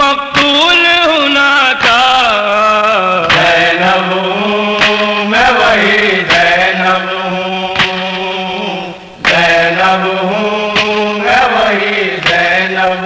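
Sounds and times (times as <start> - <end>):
person chanting: 0.0 - 13.0
sharp beat: 3.2 - 13.0.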